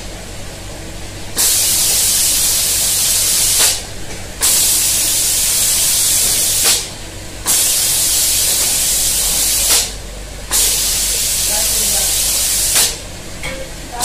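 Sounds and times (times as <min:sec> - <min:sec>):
low machine hum: 0:00.0 - 0:14.0
spray guns hissing: 0:01.4 - 0:03.8, 0:04.4 - 0:13.0.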